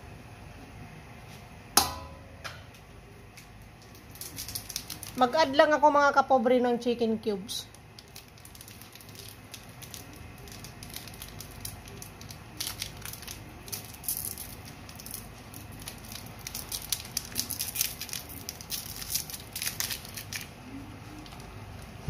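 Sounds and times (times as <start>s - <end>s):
foil wrapper crinkling and tearing: 3.8s - 5.6s, 7.7s - 21.5s.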